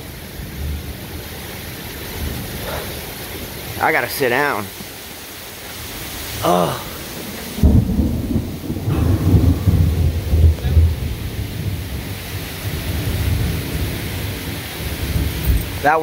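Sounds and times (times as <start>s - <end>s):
heavy rain: 0.0s - 16.0s
thunder rumbling: 7.0s - 16.0s.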